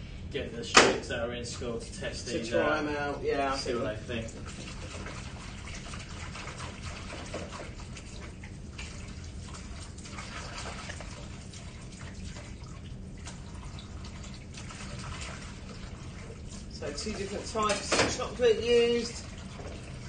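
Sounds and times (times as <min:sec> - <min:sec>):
low steady hum: 0:00.0 - 0:20.0
water splashing in a sink: 0:04.0 - 0:20.0.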